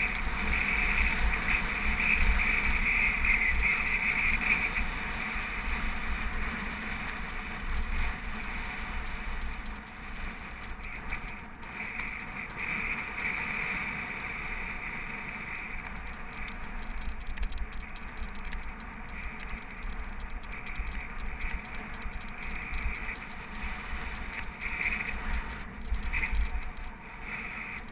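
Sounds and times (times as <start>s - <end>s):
bike rattling over bumps: 0.0s - 27.9s
wind rumble on microphone: 0.0s - 27.9s.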